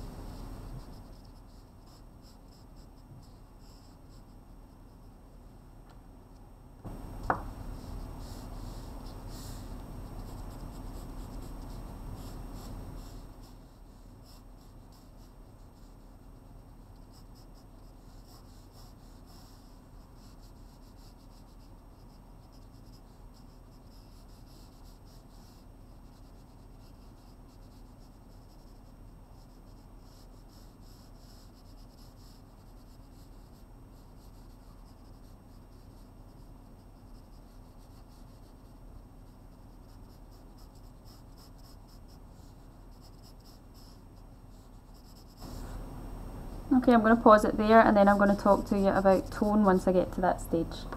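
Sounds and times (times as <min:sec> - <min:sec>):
low steady hum: 0:00.0 - 0:50.9
pencil scratching on paper: 0:00.1 - 0:05.0, 0:06.9 - 0:45.8, 0:46.9 - 0:50.1.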